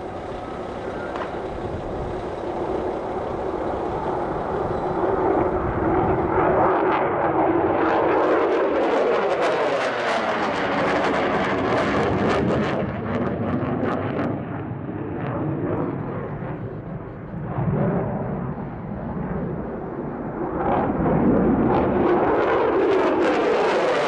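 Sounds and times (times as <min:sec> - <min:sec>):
jet engines crackling rumble: 0:00.0 - 0:24.0.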